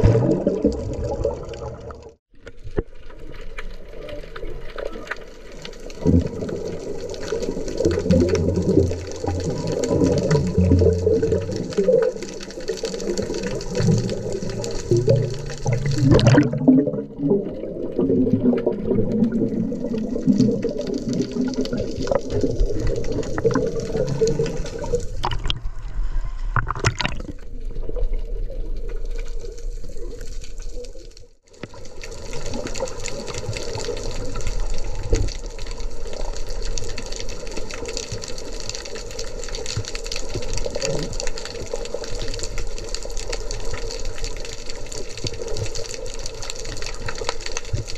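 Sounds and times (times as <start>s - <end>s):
underwater water rushing and bubbling: 0.0s - 47.9s.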